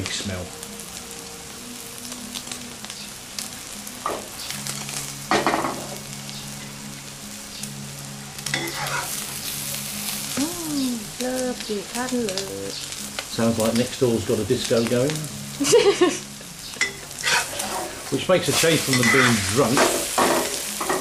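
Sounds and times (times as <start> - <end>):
omelette sizzling in deep oil: 0.0 - 21.0
metal spatula scraping pan: 8.6 - 9.2, 16.8 - 20.0.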